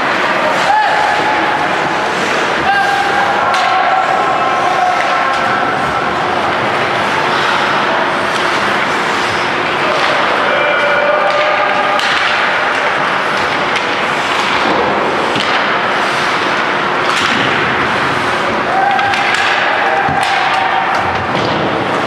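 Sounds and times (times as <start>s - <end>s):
sticks and puck clacking: 0.0s - 22.0s
people shouting: 0.5s - 1.6s, 2.6s - 6.6s, 9.8s - 12.6s, 18.6s - 21.2s.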